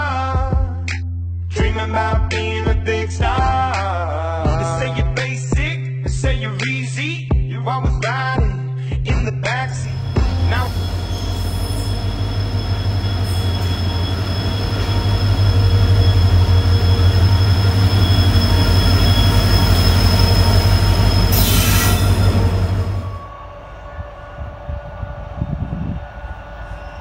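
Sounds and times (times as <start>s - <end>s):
music: 0.0s - 23.1s
diesel locomotive engine throb: 9.6s - 27.0s
high-pitched wheel squeal: 9.8s - 24.1s
train wheels on rails: 9.8s - 27.0s.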